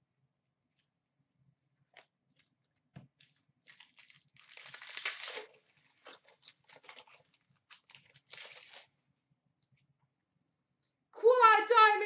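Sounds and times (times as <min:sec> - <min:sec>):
wrapper crinkling and tearing: 0:03.2 - 0:09.0.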